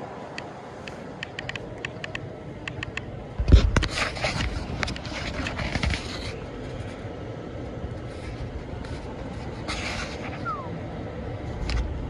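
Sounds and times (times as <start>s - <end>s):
clicks knocks and scrapes: 3.4s - 6.9s.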